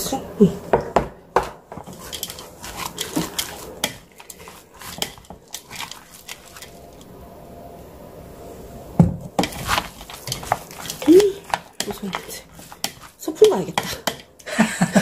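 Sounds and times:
utensils tapping dishes: 0:01.7 - 0:07.0, 0:09.4 - 0:14.5
wet chewing: 0:01.8 - 0:07.1, 0:09.4 - 0:14.5.

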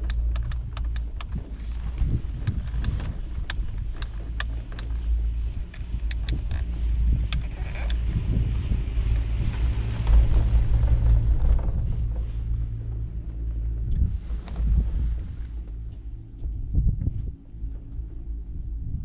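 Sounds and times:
chairlift humming: 0:00.0 - 0:18.8
rumble with rushing noise: 0:00.0 - 0:19.0
sharp clicks: 0:02.5 - 0:06.6.

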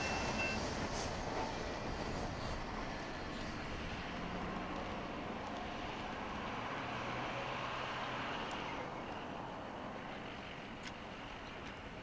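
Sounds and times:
freight train rolling past: 0:00.0 - 0:07.3.

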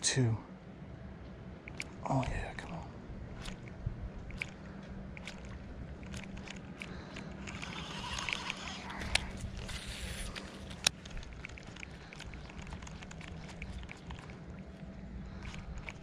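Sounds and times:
light ticking of reel and rod: 0:01.6 - 0:16.0
reel engaging click: 0:04.3 - 0:04.6, 0:05.2 - 0:14.3
fishing line hissing off reel: 0:05.2 - 0:10.9.

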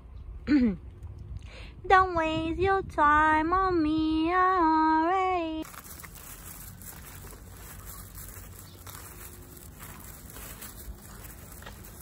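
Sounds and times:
wind rumbling on microphone: 0:01.0 - 0:05.0.

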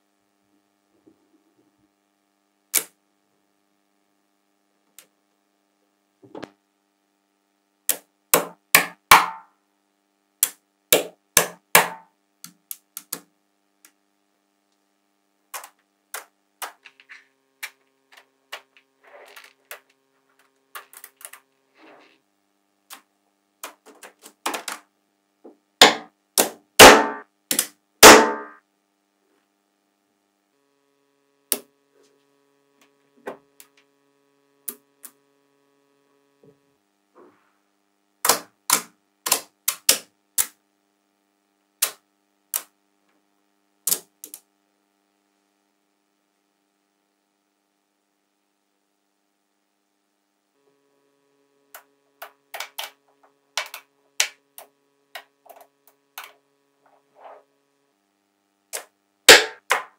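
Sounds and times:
magnetic balls clicking together: 0:12.4 - 0:13.3, 0:15.5 - 0:21.5, 0:38.2 - 0:40.6, 0:51.8 - 0:53.0, 0:53.6 - 0:56.4.

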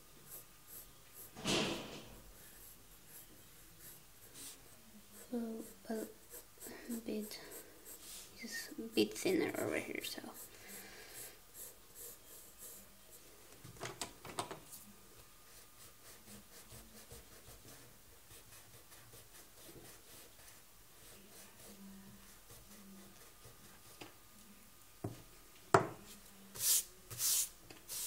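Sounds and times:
pencil scratching on paper: 0:00.2 - 0:01.4, 0:02.3 - 0:13.2, 0:15.5 - 0:24.0.

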